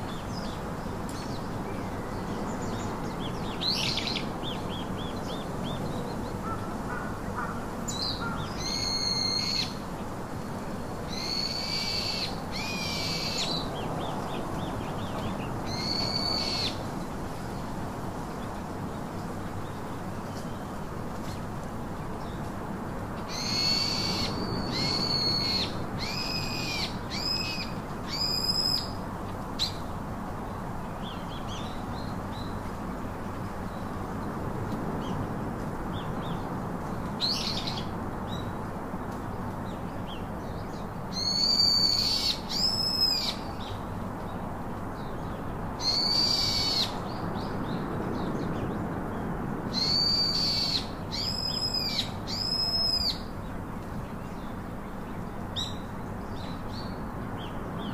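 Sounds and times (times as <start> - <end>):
bird whistled calls: 41.2 - 43.4, 49.8 - 53.2.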